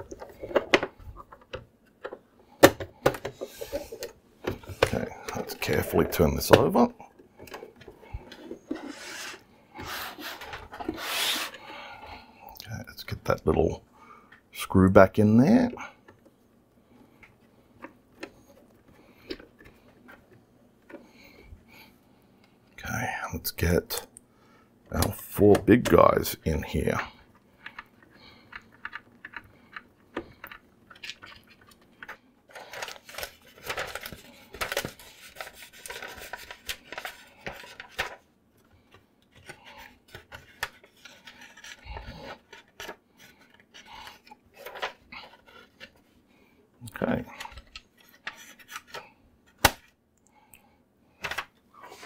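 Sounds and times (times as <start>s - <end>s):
paper rustling: 30.9s - 46.0s.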